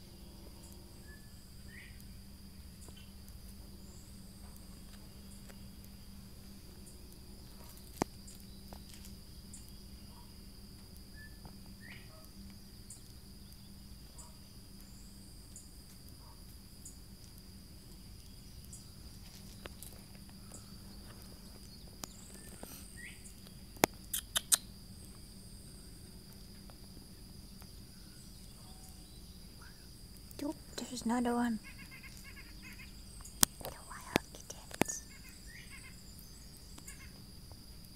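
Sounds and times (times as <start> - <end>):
insects droning: 0.0 - 37.9
sharp clicks: 23.8 - 24.7
faint short chirps: 24.1 - 24.7.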